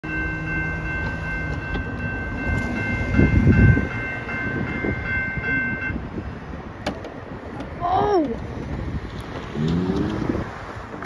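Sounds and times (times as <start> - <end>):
railroad crossing bell ringing: 0.0 - 6.8.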